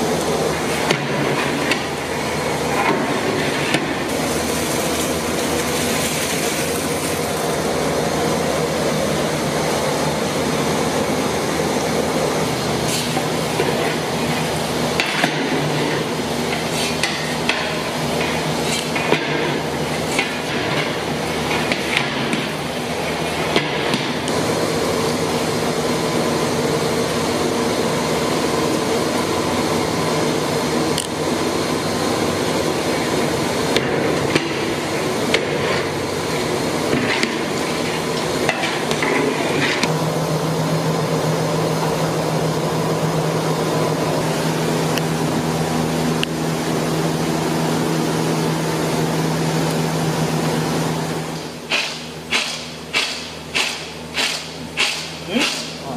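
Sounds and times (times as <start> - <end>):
rumbling hiss and hum: 0.0 - 55.9.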